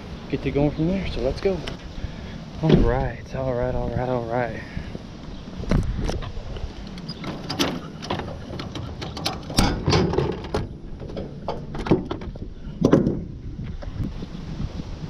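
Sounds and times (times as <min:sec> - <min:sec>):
plastic and metal parts rattling: 0:07.0 - 0:13.2.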